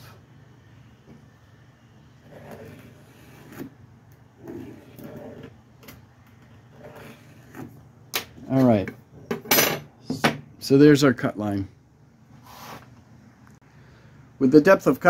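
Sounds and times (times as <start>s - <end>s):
pen drawing along ruler: 2.2s - 3.8s, 4.4s - 5.6s, 6.5s - 7.8s.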